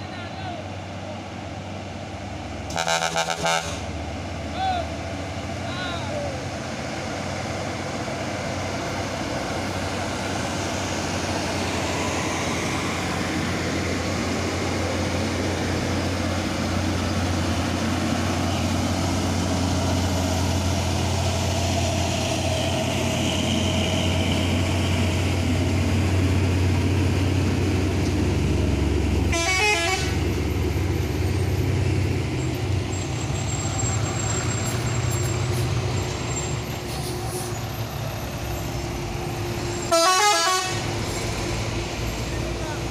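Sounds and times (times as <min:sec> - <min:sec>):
heavy diesel engines labouring: 0:00.0 - 0:42.9
vehicle horn tooting: 0:02.7 - 0:03.8, 0:29.3 - 0:30.2, 0:39.9 - 0:40.8.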